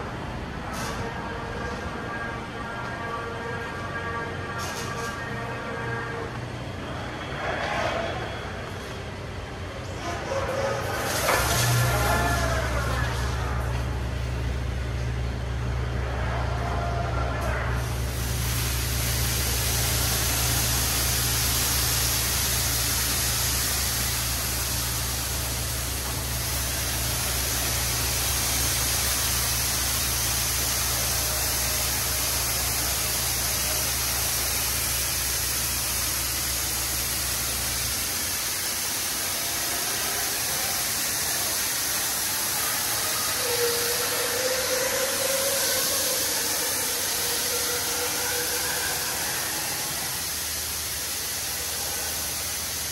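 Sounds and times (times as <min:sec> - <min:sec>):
car wash water spray hiss: 0:09.8 - 0:16.2, 0:17.4 - 0:52.9.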